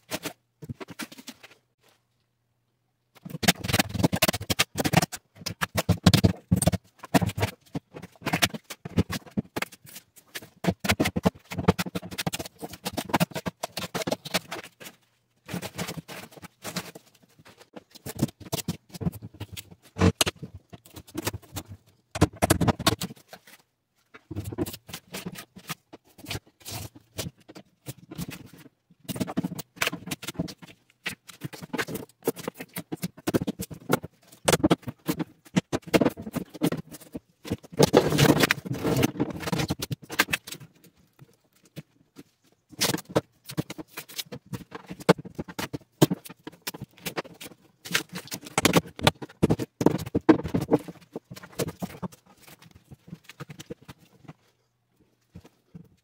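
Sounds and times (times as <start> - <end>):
foam insulation crackling and snapping: 24.2 - 54.6.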